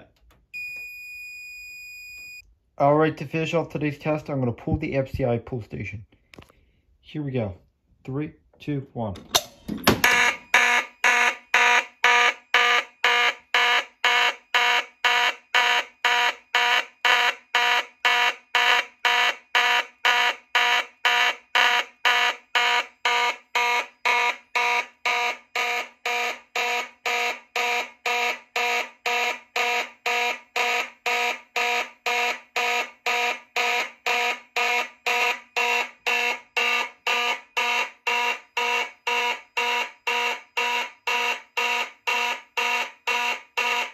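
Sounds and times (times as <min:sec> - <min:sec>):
fire alarm horn pulsing: 0:10.0 - 0:43.9.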